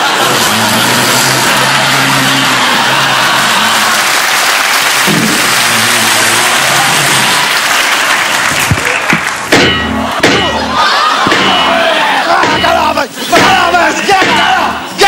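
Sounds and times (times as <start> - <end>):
audience applauding: 0.0 - 12.1.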